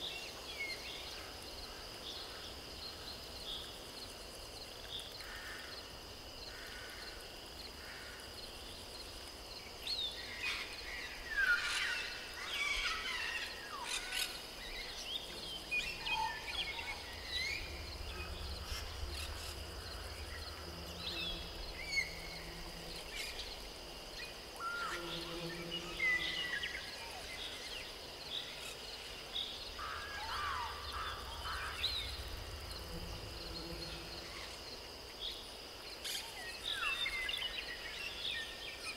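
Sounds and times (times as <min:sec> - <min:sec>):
birds chirping: 0:09.9 - 0:35.4
high-pitched insect drone: 0:10.1 - 0:27.9, 0:28.6 - 0:37.4.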